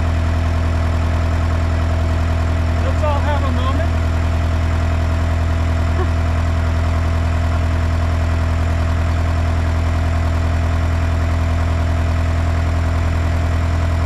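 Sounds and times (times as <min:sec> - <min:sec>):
bulldozer diesel engine idling: 0:00.0 - 0:14.0.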